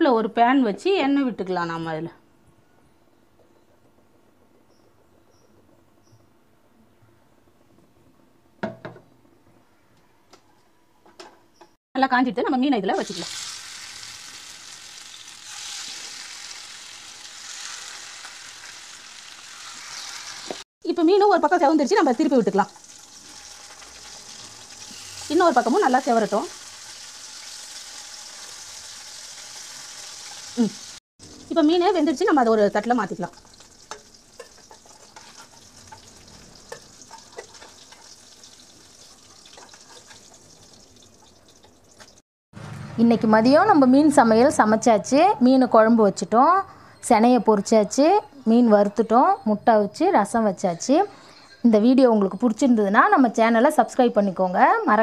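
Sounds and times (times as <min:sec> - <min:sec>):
fish sizzling in hot oil: 0:13.0 - 0:20.6, 0:21.5 - 0:42.2
metal spatula scraping pan: 0:33.5 - 0:40.6.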